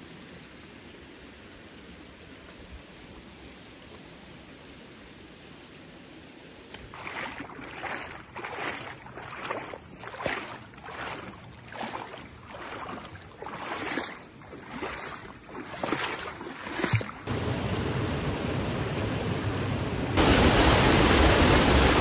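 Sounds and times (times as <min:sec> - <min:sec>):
small waterfall rushing: 0:00.0 - 0:09.6, 0:11.0 - 0:22.0
water splashing rhythmically: 0:06.7 - 0:17.4.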